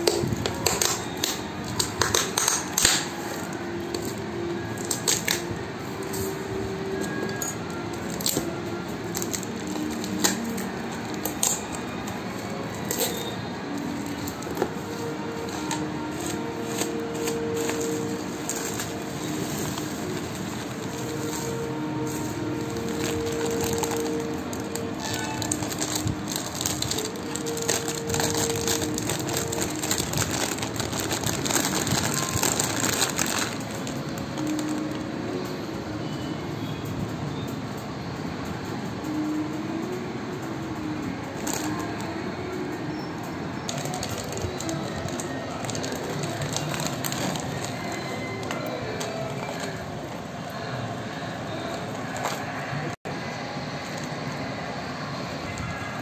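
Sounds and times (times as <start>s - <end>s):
parcel wrapping crinkling: 0.0s - 35.1s, 41.4s - 42.1s, 43.7s - 50.0s.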